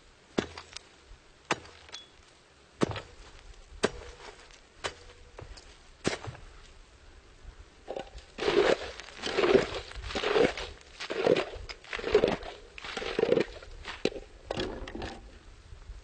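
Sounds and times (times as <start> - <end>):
ice crunched and scraped by tool: 7.9 - 15.2.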